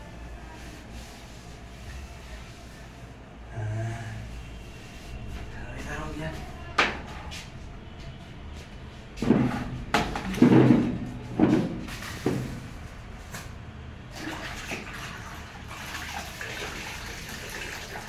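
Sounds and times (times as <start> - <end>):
cloth wiping floor: 0.0 - 3.2, 4.6 - 6.5.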